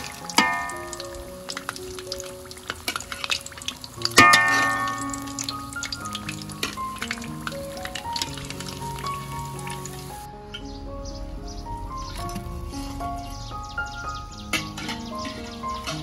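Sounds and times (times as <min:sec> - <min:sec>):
hot oil sizzling and crackling: 0:00.0 - 0:11.2, 0:11.9 - 0:16.0
loud ringing metal clank: 0:00.4 - 0:01.2, 0:04.2 - 0:05.6
metal spatula scraping wok: 0:14.5 - 0:16.0.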